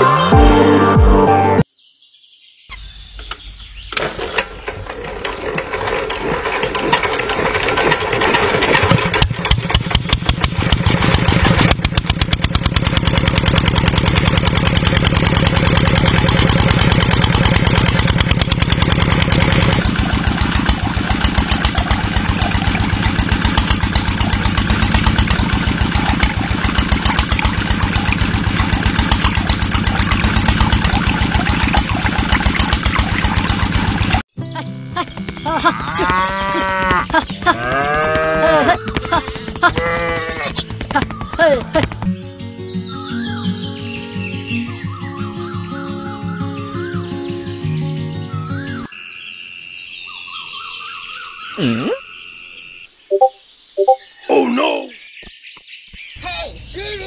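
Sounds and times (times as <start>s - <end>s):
water pump engine chugging: 4.0s - 42.1s.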